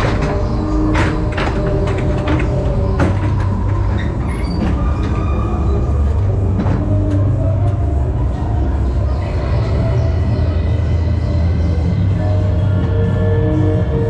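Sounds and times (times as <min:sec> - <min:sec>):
sharp knocks and clacks: 0:00.0 - 0:04.8
train car wheels rumbling: 0:00.0 - 0:14.0.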